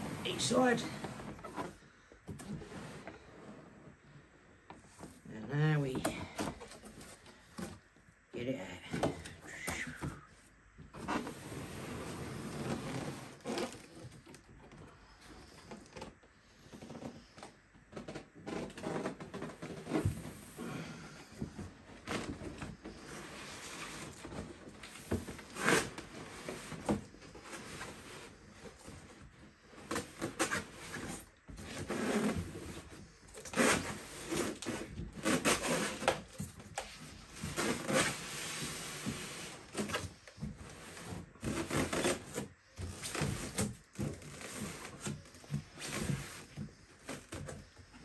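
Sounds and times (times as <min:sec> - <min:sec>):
cardboard box scraping and rustling: 0:00.0 - 0:03.8, 0:11.0 - 0:14.2.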